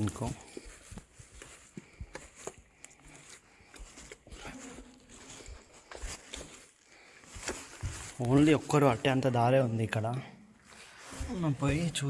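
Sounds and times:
footsteps scuffing over rock: 0.0 - 9.3
clothing rustling: 0.0 - 12.0.

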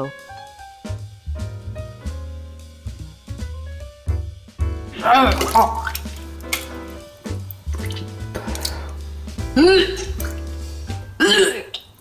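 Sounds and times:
background music with bass line: 0.0 - 11.5
water sloshing in toilet bowl: 5.0 - 9.0, 9.6 - 10.6.

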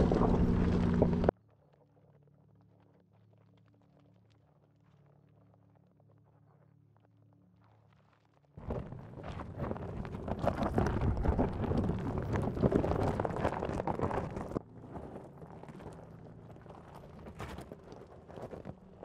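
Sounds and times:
tyres crunching over gravel: 8.6 - 19.0.

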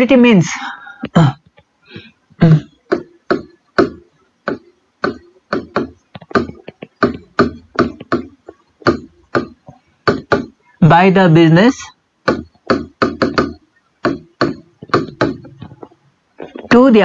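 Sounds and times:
marker writing on whiteboard: 2.8 - 10.6, 12.2 - 16.9.

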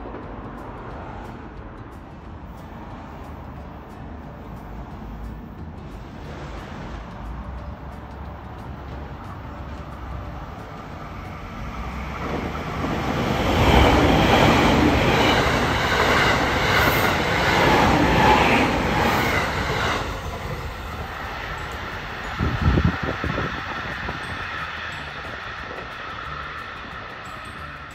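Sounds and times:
electric train passing: 0.0 - 27.9.

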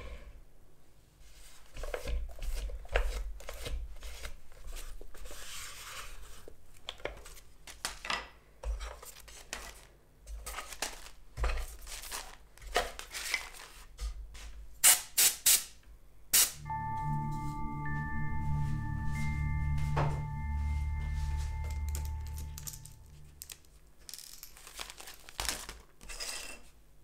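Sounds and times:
paper sleeves rustling: 8.9 - 14.5.

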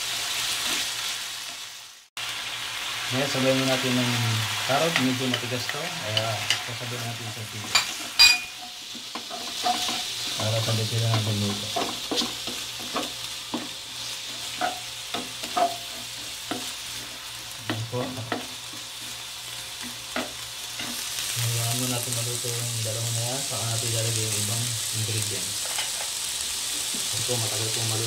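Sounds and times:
food sizzling in a wok: 0.0 - 28.0
wooden spatula scraping a pan: 5.0 - 21.1.

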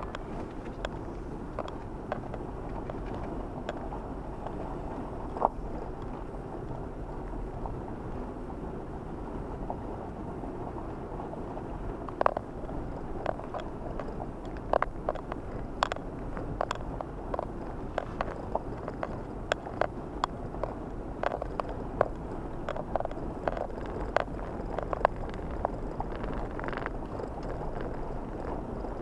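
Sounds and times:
knocks and ticks in car cabin: 0.0 - 6.3, 12.0 - 29.0
car engine and tyres rumbling: 0.0 - 29.0.

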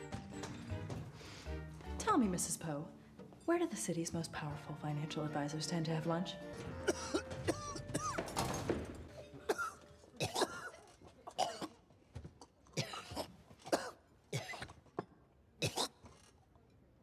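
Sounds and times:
man coughing: 6.8 - 8.2, 9.4 - 10.8.

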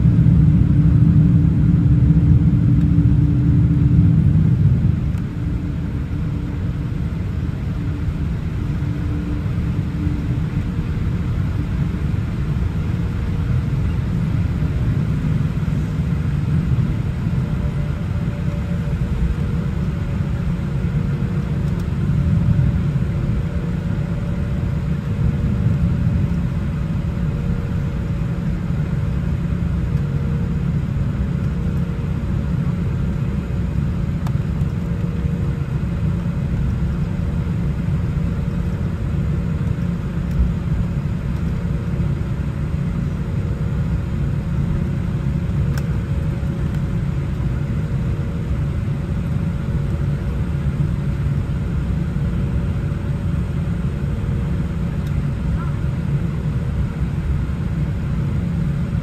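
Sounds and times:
airplane cabin engine rumble: 0.0 - 59.0
faint steady hum: 0.0 - 59.0.

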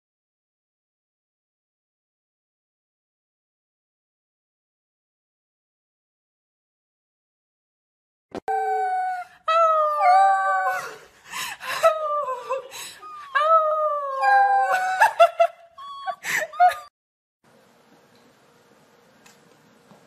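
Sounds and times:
puppy howling: 8.5 - 11.0, 11.9 - 16.9
puppy yelping: 15.8 - 16.9.

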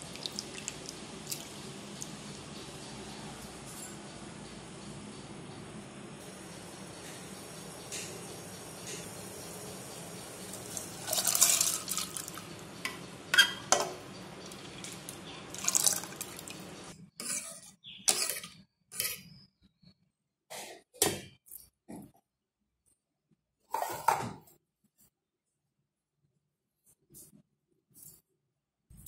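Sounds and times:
lentils poured into water splashing: 10.7 - 12.4, 15.5 - 16.5
metal spoon scraping a pot: 13.3 - 13.8, 17.1 - 19.5.

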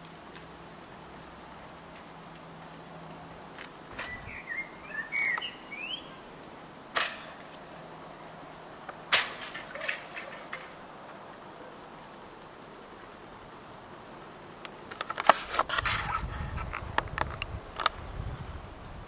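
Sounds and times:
high chirping calls: 3.9 - 6.3
wing mirrors cracking off: 8.8 - 10.9.

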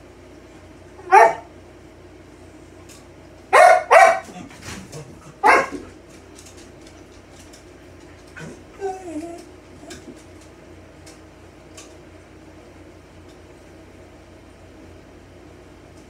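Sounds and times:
dog barking: 1.0 - 1.5, 3.5 - 4.5, 5.4 - 5.9.

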